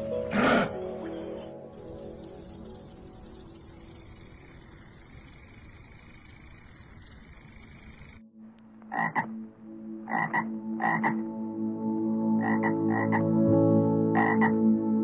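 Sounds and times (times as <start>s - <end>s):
insect trilling: 1.7s - 8.2s
toad croaking: 1.7s - 8.2s, 8.9s - 9.3s, 10.1s - 11.2s, 12.4s - 13.2s, 14.2s - 14.5s.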